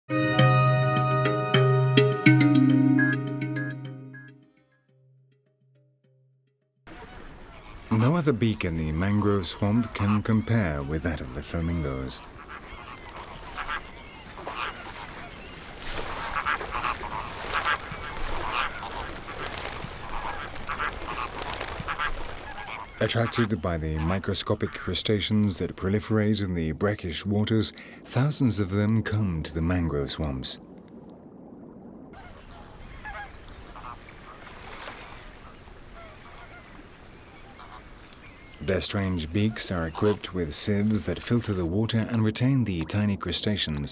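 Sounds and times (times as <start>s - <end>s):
flamingos honking: 6.9s - 25.0s, 32.2s - 41.8s.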